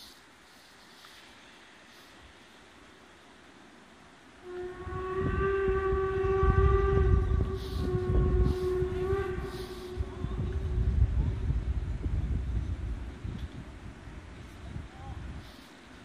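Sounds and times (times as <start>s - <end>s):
steam whistle blast: 4.4s - 10.8s
low rumble: 4.7s - 15.3s.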